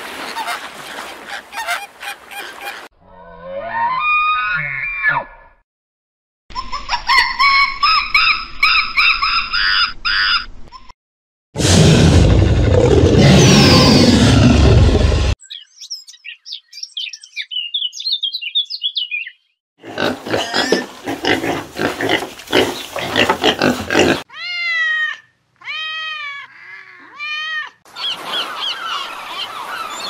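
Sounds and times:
pigs grunting: 19.8s - 24.3s.

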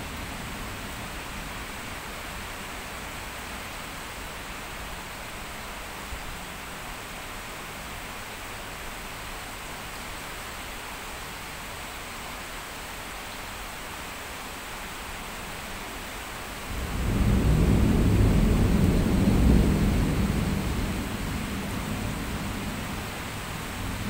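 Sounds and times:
heavy rain hiss: 0.0s - 24.0s
low rumble of thunder: 16.6s - 24.0s.

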